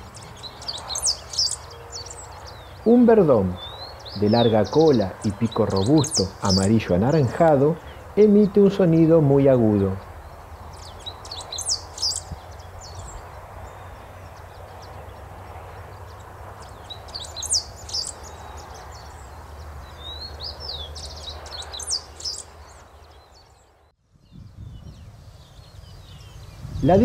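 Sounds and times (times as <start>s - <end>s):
finch singing high notes: 0.0s - 10.1s.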